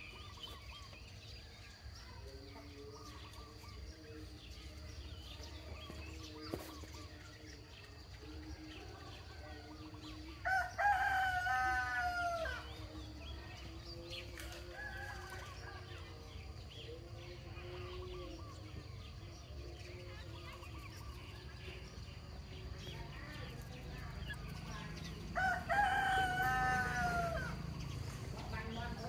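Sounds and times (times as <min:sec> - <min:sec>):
rooster crowing: 0:10.4 - 0:12.7, 0:25.4 - 0:27.7.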